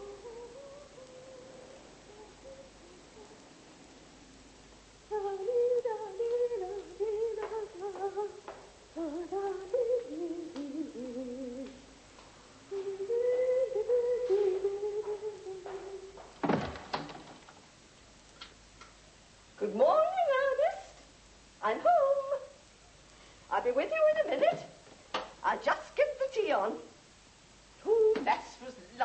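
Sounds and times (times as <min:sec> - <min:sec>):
woman humming: 0:00.0 - 0:03.6, 0:05.1 - 0:12.0, 0:12.7 - 0:16.2, 0:27.8 - 0:28.4.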